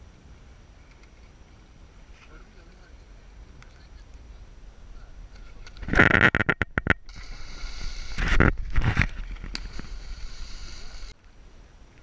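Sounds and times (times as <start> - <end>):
hiss of water: 7.1 - 8.4, 9.5 - 11.2
rush of air past microphone: 7.1 - 11.2.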